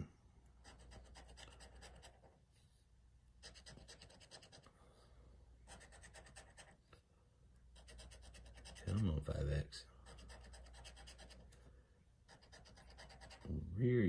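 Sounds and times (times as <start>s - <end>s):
scraping scratch-off ticket: 7.8s - 11.5s, 12.3s - 13.6s.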